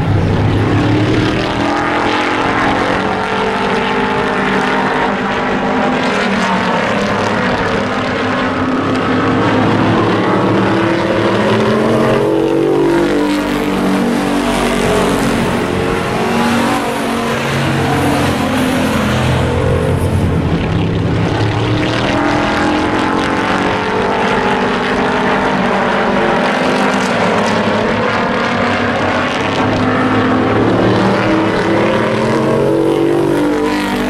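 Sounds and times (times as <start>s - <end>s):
race truck engines: 0.0s - 34.0s.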